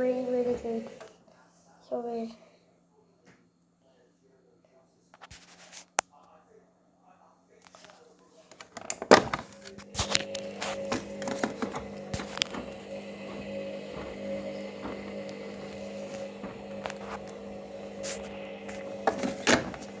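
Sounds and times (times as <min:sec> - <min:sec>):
washing machine motor hum: 0:00.0 - 0:01.1, 0:08.9 - 0:20.0.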